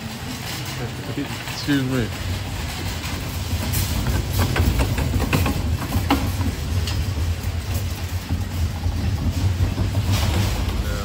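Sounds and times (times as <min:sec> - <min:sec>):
low store rumble: 0:00.0 - 0:11.0
scattered clicks and knocks: 0:00.0 - 0:11.0.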